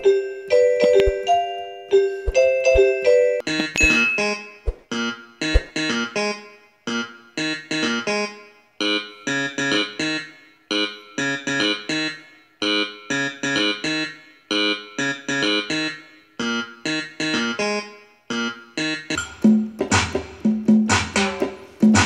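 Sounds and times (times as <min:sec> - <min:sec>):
bright repeating note phrase: 0:00.0 - 0:04.6.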